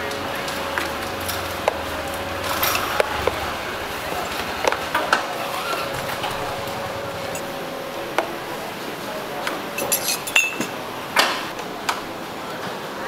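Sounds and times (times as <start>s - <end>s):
steady background noise: 0.0s - 13.0s
glasses and cups clinking: 0.7s - 8.7s, 9.3s - 11.6s.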